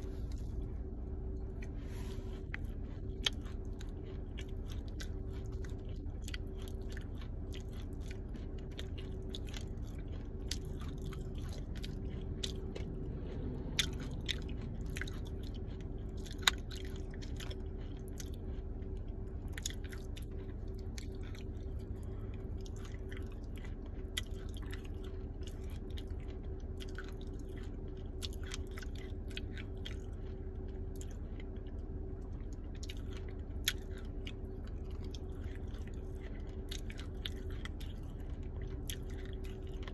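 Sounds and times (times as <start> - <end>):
low hum: 0.0 - 39.9.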